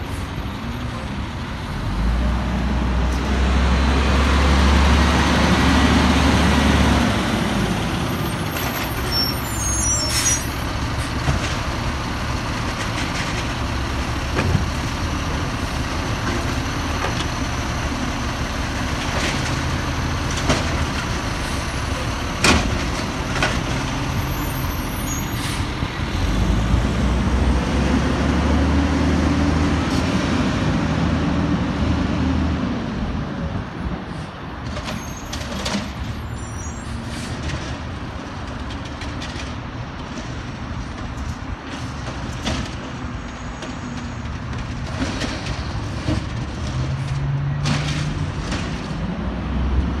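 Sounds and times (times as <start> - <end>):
garbage truck diesel engine: 0.0 - 50.0.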